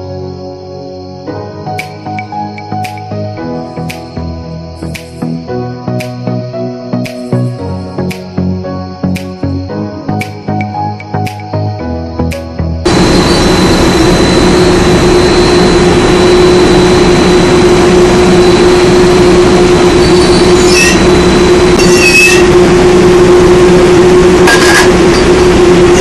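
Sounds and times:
drilling machinery droning: 12.8s - 26.0s
high metallic squeals: 12.9s - 26.0s.

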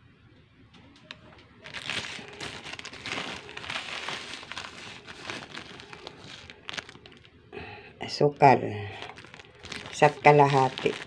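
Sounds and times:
plastic bag crinkling: 1.1s - 7.4s, 8.1s - 11.0s.

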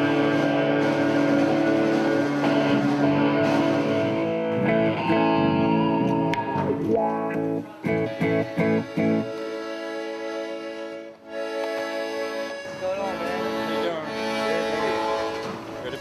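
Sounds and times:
distorted electric guitar rock music: 0.0s - 9.5s.

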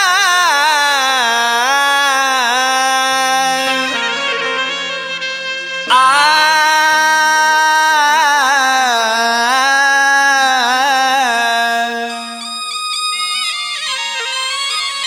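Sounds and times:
ornamented melody: 0.9s - 15.0s
light high melody: 3.4s - 8.4s
steady drone: 3.6s - 8.0s.

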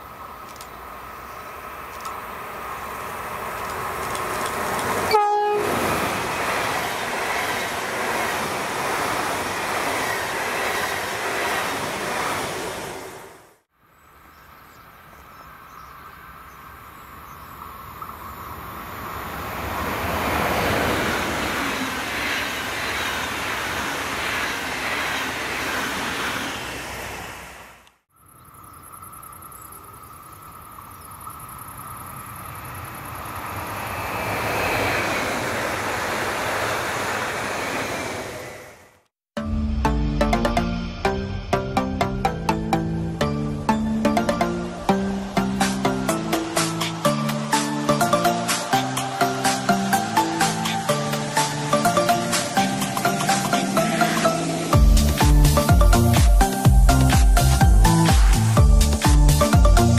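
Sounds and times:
trains passing at speed: 0.0s - 28.0s, 28.9s - 39.1s, 39.8s - 59.9s
train horn blast: 5.1s - 6.1s.

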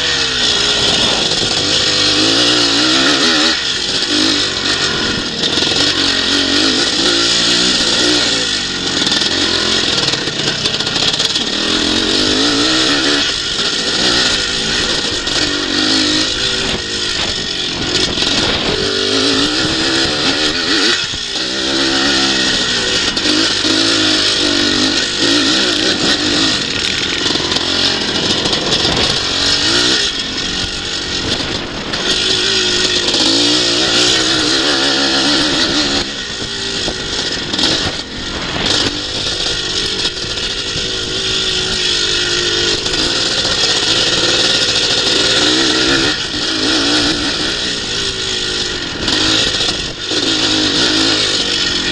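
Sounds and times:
motocross bike engine revving: 0.0s - 51.9s.

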